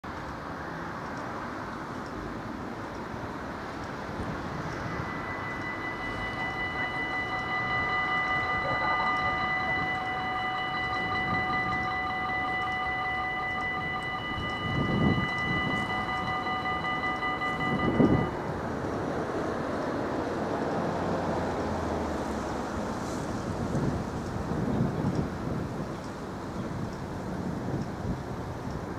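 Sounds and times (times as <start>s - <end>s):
wind rumble on microphone: 2.2s - 28.9s
level crossing warning bells: 2.9s - 19.8s.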